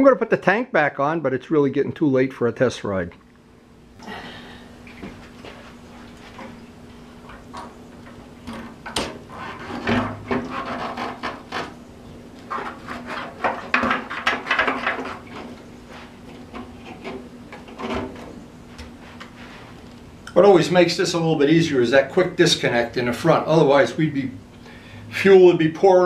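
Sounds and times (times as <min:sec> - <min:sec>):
faint steady hum: 0:00.0 - 0:26.0
fuel tank rubbing and scraping: 0:08.7 - 0:11.8, 0:12.4 - 0:18.4.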